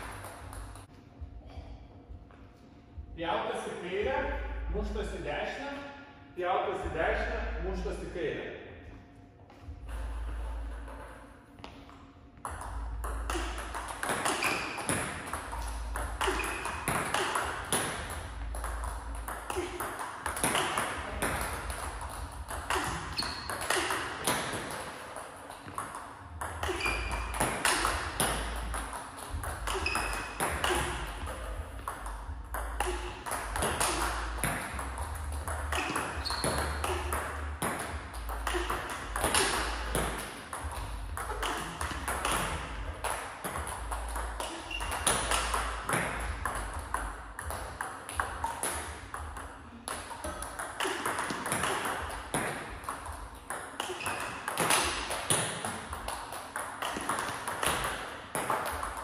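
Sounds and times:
table tennis balls pinging: 0:00.0 - 0:01.6, 0:09.6 - 0:59.0.

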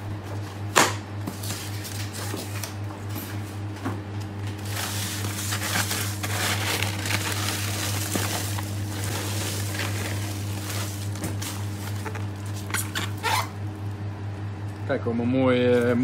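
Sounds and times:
hand digging through ice: 0:04.6 - 0:13.2
polystyrene lid cracking: 0:04.6 - 0:13.5.

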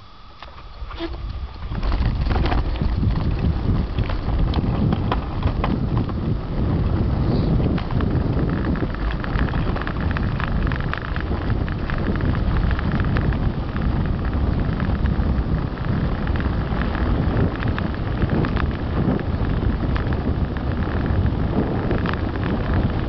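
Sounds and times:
tyre roar on concrete: 0:00.0 - 0:23.0
wind buffeting microphone: 0:00.0 - 0:23.0
bike rattling clicks: 0:00.4 - 0:23.0.

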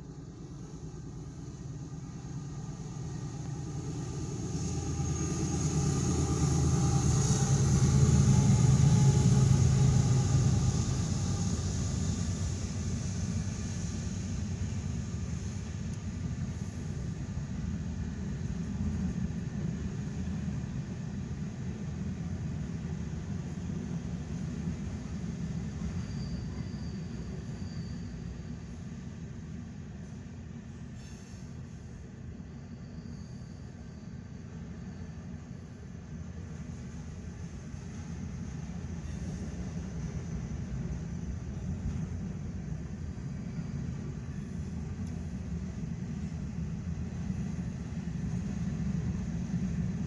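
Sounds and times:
diesel locomotive engine drone: 0:00.0 - 0:50.0.

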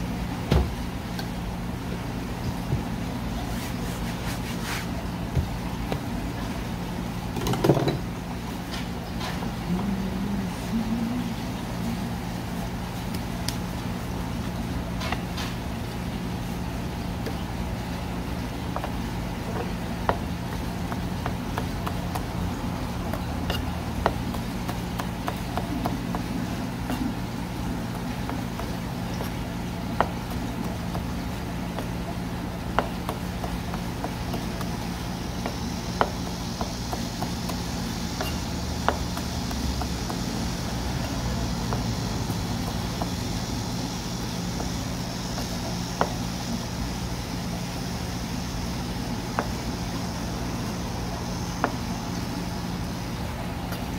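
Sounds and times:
low machine hum: 0:00.0 - 0:53.9.

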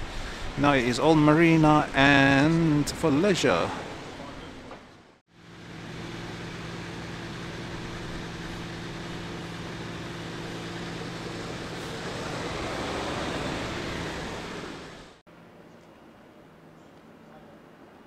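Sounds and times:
traffic noise: 0:00.0 - 0:15.2
low engine drone: 0:05.3 - 0:15.2.

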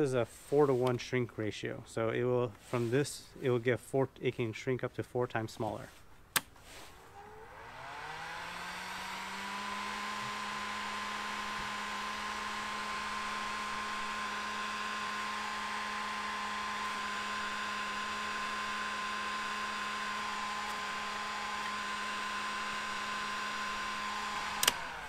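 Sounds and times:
switch click: 0:06.3 - 0:06.6, 0:24.5 - 0:24.8
heat gun running: 0:06.9 - 0:25.0.

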